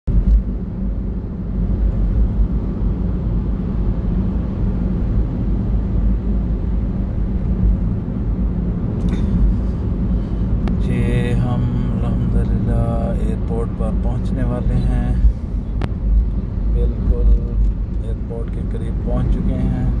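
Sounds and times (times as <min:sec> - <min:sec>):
road and engine noise in car: 0:00.1 - 0:20.0.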